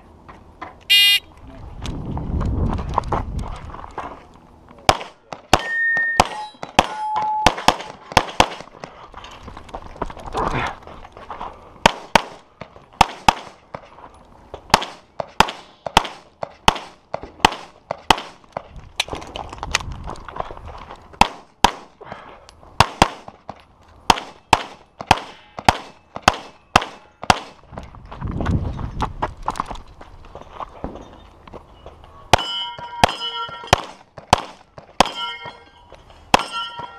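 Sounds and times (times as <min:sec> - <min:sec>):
rapid pistol shots: 0:04.9 - 0:08.7, 0:14.7 - 0:18.4, 0:33.8 - 0:35.2.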